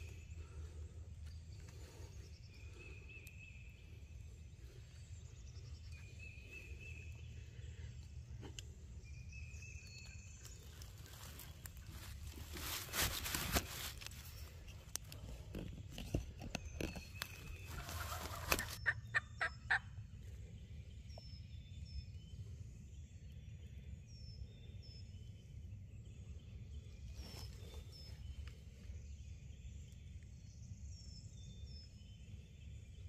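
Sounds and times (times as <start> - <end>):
dry leaves rustling and crackling: 10.3 - 14.6, 17.1 - 18.8.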